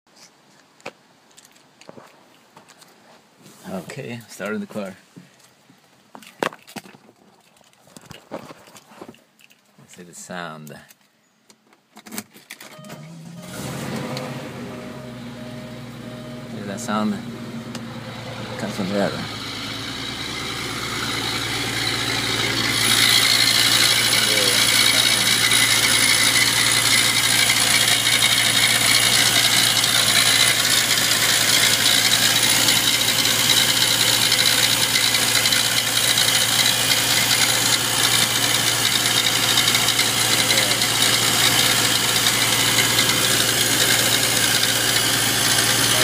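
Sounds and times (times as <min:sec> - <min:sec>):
car engine idling: 0:12.8 - 0:46.0
cooling fan belt noise: 0:13.4 - 0:46.0.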